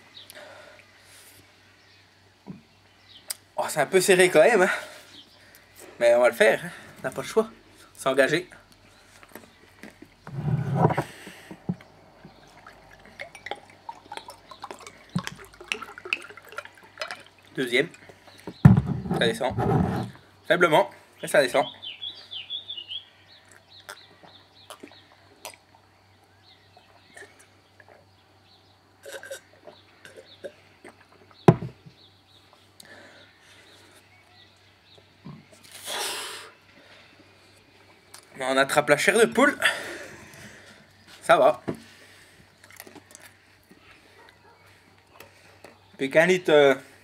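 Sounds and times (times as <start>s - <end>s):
liquid glugging into glass: 12.3s - 18.1s
glass knocks: 18.6s - 19.2s, 31.5s - 31.8s.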